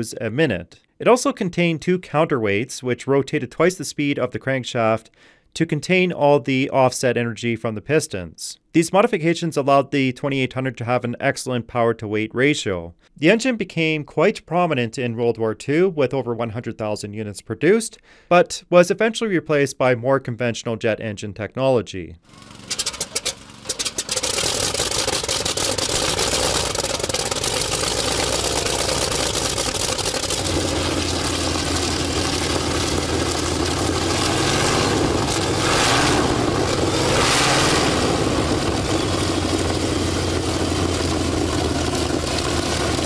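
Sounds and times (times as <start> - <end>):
radial aircraft engine running: 22.3 - 43.0.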